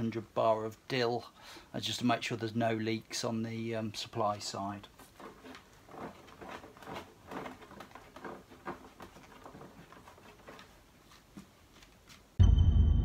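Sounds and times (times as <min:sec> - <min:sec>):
hands handling hoses and fittings: 0:04.3 - 0:12.3.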